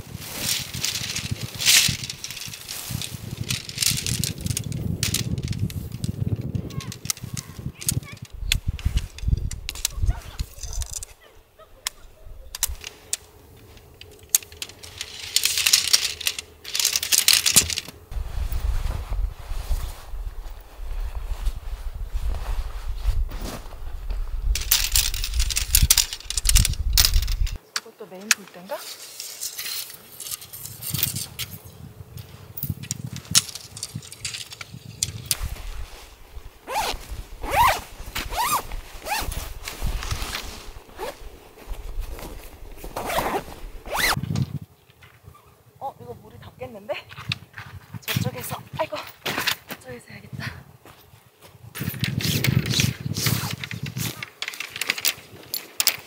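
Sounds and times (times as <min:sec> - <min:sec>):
wind buffeting microphone: 0:00.0 - 0:12.9, 0:17.6 - 0:27.6, 0:30.6 - 0:44.8, 0:50.2 - 0:54.2
tent poles clicking and rattling: 0:00.0 - 0:18.8, 0:24.4 - 0:45.2, 0:51.8 - 0:56.0
scraping rustle: 0:00.0 - 0:27.6, 0:28.3 - 0:44.6, 0:51.8 - 0:56.0.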